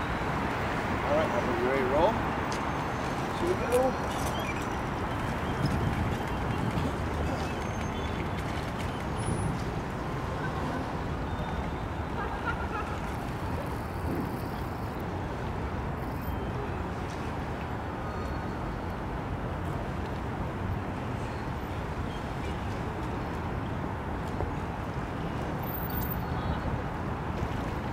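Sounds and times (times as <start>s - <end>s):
distant traffic rumble: 0.0s - 18.0s.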